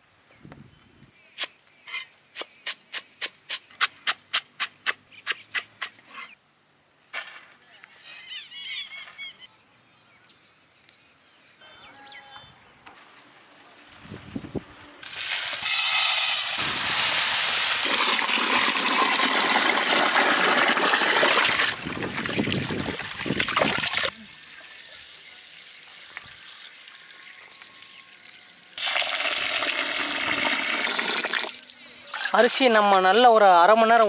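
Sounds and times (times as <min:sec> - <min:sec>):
water pouring into metal bowl: 0:17.6 - 0:25.8, 0:28.8 - 0:32.4.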